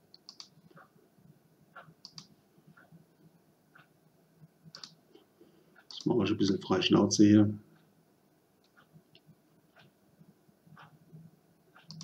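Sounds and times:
faint computer mouse clicks: 0.1s - 0.9s, 1.8s - 2.9s, 4.7s - 5.0s, 5.8s - 6.6s, 11.8s - 12.0s.

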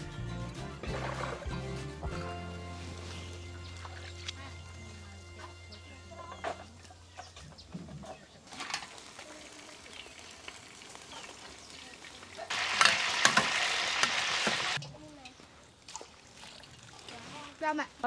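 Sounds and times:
loud crackling sizzle: 8.6s - 14.8s
food sizzling in hot pan: 12.5s - 14.8s.

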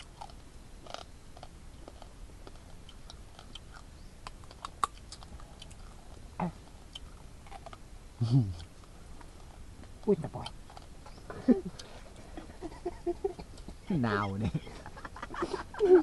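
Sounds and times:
person chewing crunchy meat: 0.0s - 7.9s.

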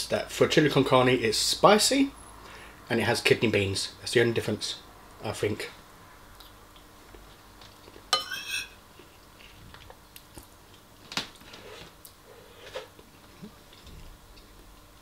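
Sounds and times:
quiet chewing: 6.3s - 8.1s, 8.9s - 15.0s
metal spoon scraping ceramic bowl: 8.2s - 8.8s.

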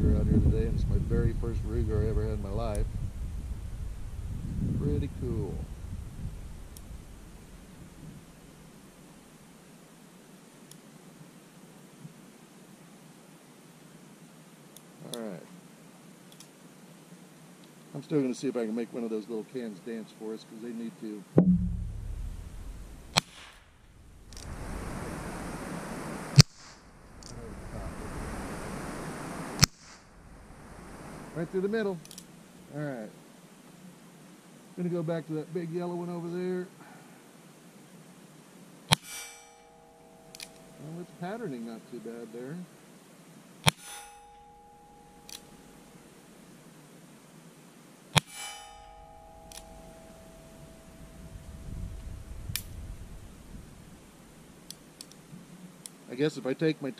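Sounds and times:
steady hiss: 0.0s - 56.9s
faint click: 16.3s - 16.5s
steel target ringing: 21.4s - 23.2s, 39.0s - 42.1s, 43.7s - 46.1s, 48.2s - 52.4s
revolver gunshot: 21.4s - 23.7s
low rumble of gunshot: 21.4s - 24.2s.

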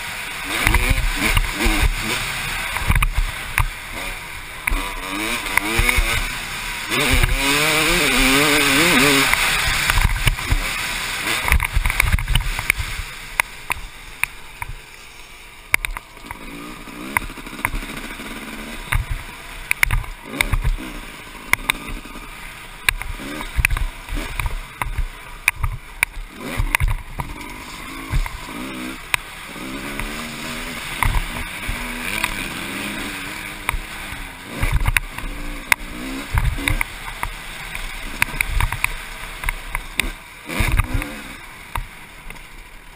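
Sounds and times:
dirt bike engine revving: 0.0s - 42.9s
wind noise: 6.9s - 14.0s.

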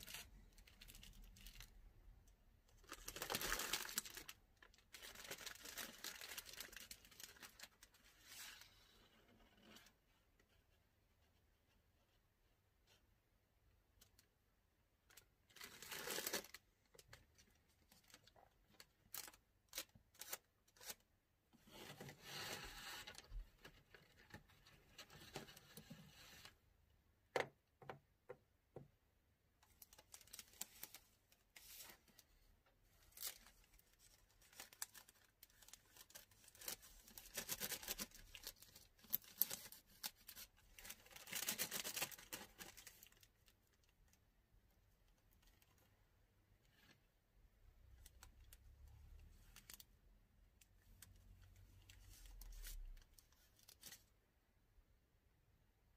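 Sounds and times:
plastic bag crinkling: 2.8s - 8.0s.

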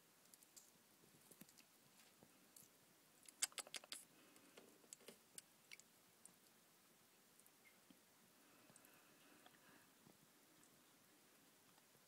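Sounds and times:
lizard jaws clicking wetly: 3.3s - 4.0s.

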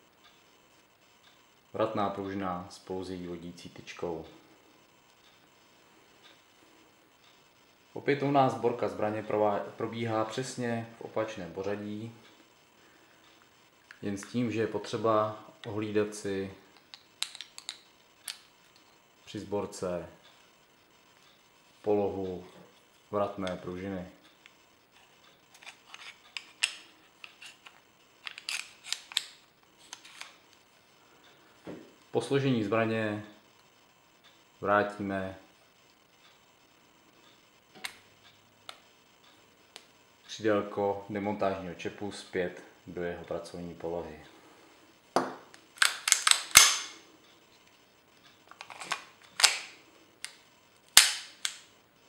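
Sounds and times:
pistol parts clicking and scraping: 16.8s - 18.9s, 25.5s - 30.4s, 45.8s - 47.0s, 48.5s - 50.4s, 51.0s - 51.6s
pistol action clicking: 45.8s - 47.0s, 51.0s - 51.6s.

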